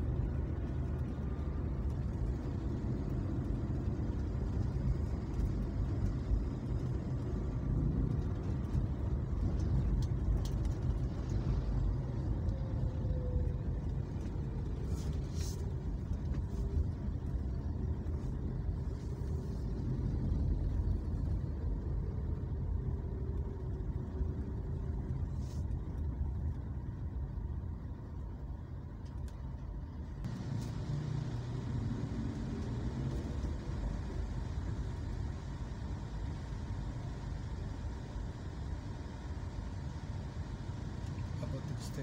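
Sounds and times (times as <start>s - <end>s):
street traffic: 0.0s - 42.0s
vehicle engine and tyre noise: 0.0s - 42.0s.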